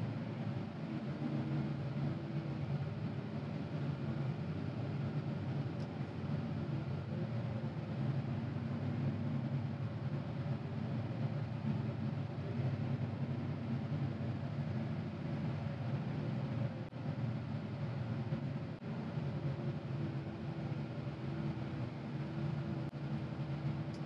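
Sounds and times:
diesel engine droning: 0.0 - 24.0.

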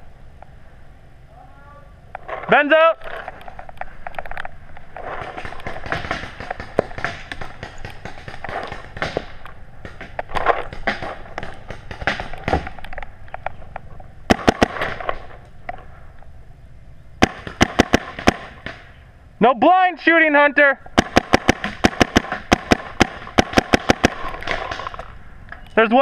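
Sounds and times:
paintball markers firing: 5.2 - 13.5, 14.3 - 15.2, 17.2 - 18.9, 20.9 - 25.2.

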